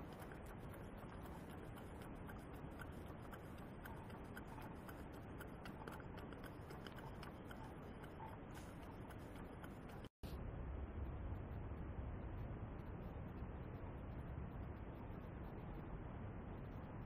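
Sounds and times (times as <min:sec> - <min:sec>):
light irregular ticking: 0:00.0 - 0:10.2.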